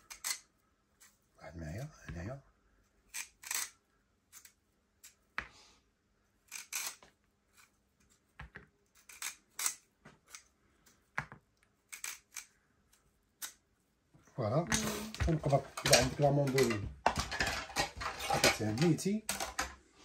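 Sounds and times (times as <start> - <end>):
vegetable peeler scraping carrot: 6.5 - 7.7, 8.9 - 10.5, 11.8 - 12.6.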